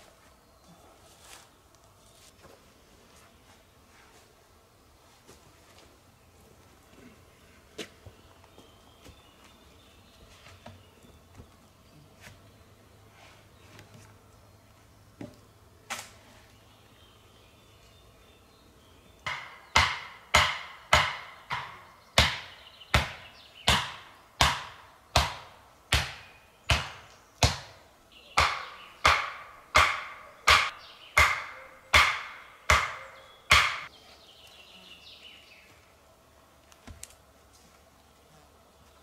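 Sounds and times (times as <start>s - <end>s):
hammering on wood: 19.3s - 27.8s, 28.4s - 33.9s.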